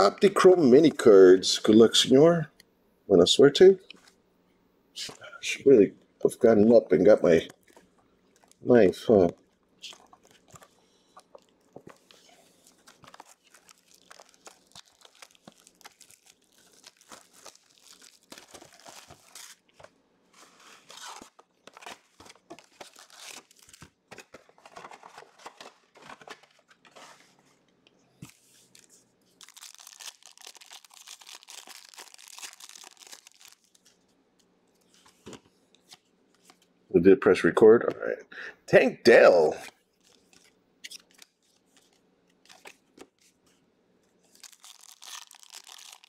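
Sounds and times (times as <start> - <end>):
plastic wrappers crinkling and tearing: 7.3 - 19.9, 20.5 - 27.0, 28.3 - 35.3, 39.6 - 43.3, 44.2 - 46.0
cardboard crackling: 7.4 - 27.3.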